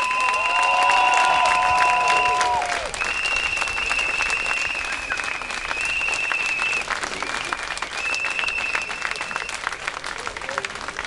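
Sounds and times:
crowd applauding: 0.0 - 11.0
high whistle blasts: 3.0 - 4.9.

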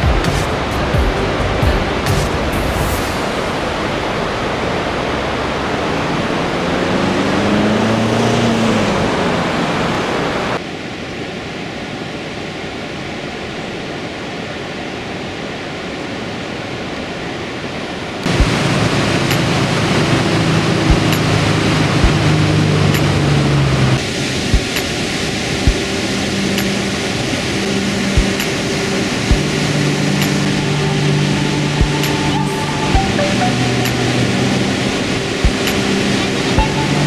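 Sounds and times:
low hum: 0.0 - 10.6, 18.2 - 37.0
waterfall roaring: 0.0 - 37.0.

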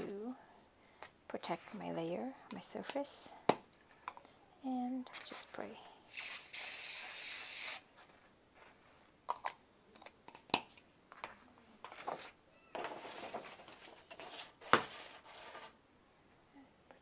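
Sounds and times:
aerosol can spraying: 6.1 - 7.9.

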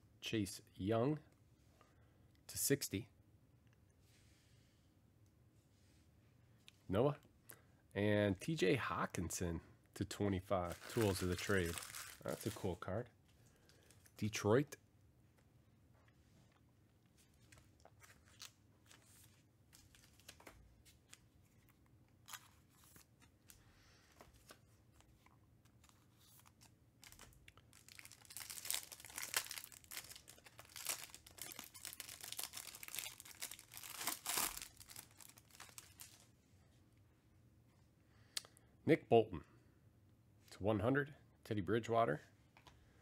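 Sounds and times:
plastic wrapper tearing and crinkling: 10.6 - 12.8, 26.4 - 36.2
faint clicks of cards handled: 42.5 - 42.8.

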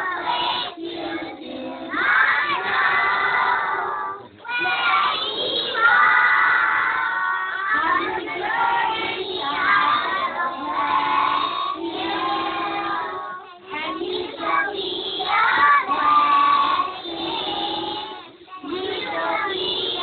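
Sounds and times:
children singing in unison: 0.0 - 20.0.

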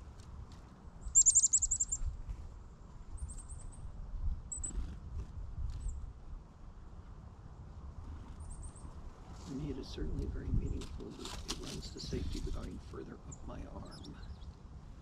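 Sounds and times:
songbird high thin calls: 1.1 - 2.0.

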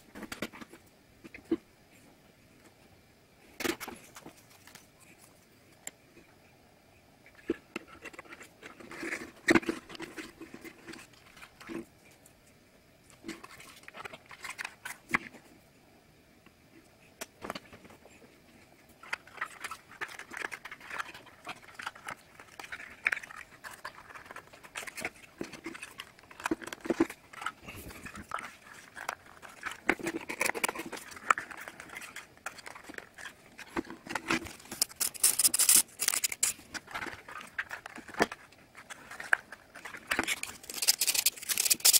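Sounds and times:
puzzle pieces clicking and rustling: 19.2 - 41.9
puzzle piece scraping into slot: 34.6 - 36.6, 40.4 - 41.9.

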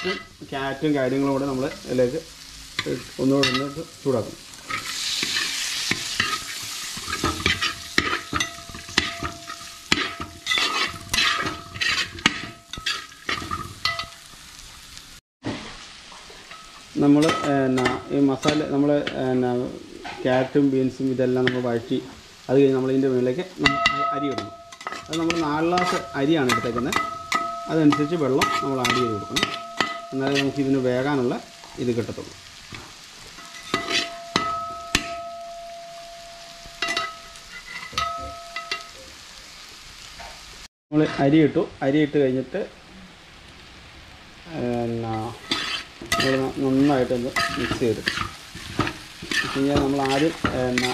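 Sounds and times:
metal spatula scraping pot: 0.0 - 0.4, 4.6 - 14.2, 23.6 - 31.8, 32.7 - 35.4, 36.7 - 38.9, 45.0 - 50.9
vegetables sizzling: 0.0 - 50.9.

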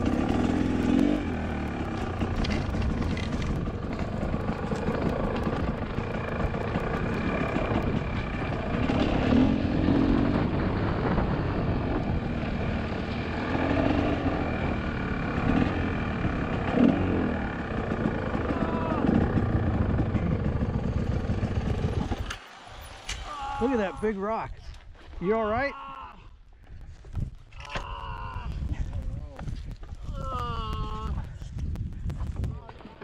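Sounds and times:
dirt bike engine revving: 0.0 - 23.9.

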